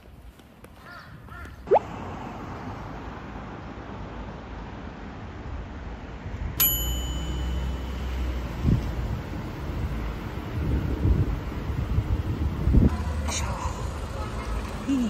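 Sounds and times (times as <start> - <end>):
low street rumble: 0.0 - 15.0
bright bell ding: 6.6 - 8.7.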